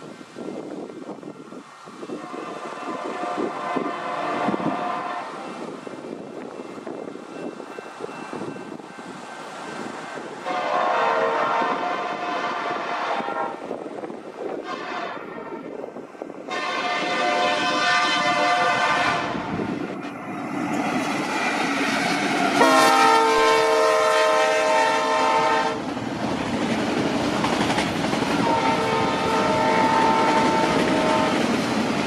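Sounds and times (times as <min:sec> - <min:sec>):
freight train rumble and wheel clatter: 0:00.0 - 0:32.0
train air horn blasts: 0:02.0 - 0:05.7, 0:10.4 - 0:13.8, 0:14.6 - 0:19.7, 0:22.5 - 0:25.8, 0:28.3 - 0:31.5.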